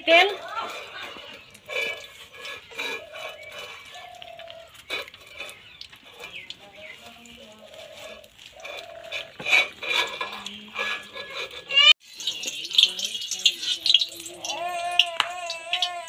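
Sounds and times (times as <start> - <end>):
oil pouring into metal pan: 12.0 - 15.9.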